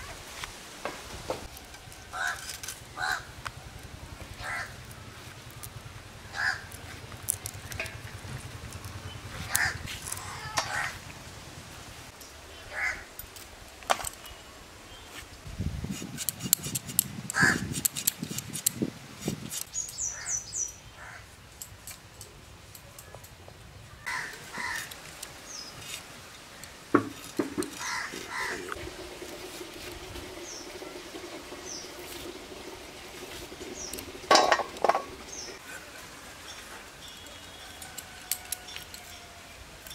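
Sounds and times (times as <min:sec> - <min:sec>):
crows cawing: 0:02.1 - 0:03.3, 0:04.4 - 0:04.8, 0:06.3 - 0:06.8, 0:09.4 - 0:11.0, 0:12.7 - 0:13.1, 0:17.4 - 0:17.6, 0:21.0 - 0:21.3, 0:24.0 - 0:24.9, 0:27.7 - 0:28.6
small birds chirping: 0:19.5 - 0:21.2.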